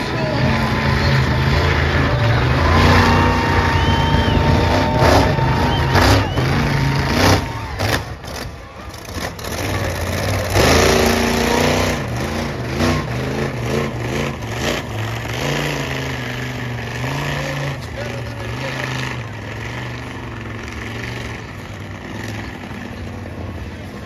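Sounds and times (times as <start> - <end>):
monster truck engine revving: 0.0 - 24.0.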